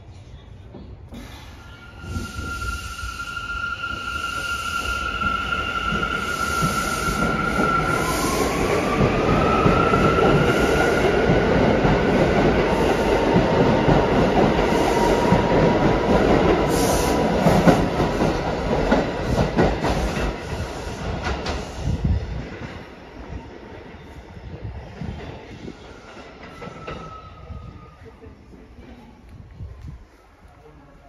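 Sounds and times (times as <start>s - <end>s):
subway train wheels on rail: 0.0s - 31.0s
train clacks: 5.2s - 22.9s.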